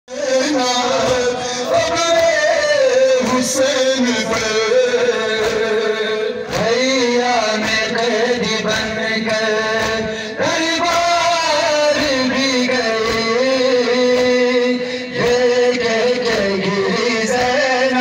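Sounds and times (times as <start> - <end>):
man chanting a lament over loudspeakers: 0.1 - 18.0.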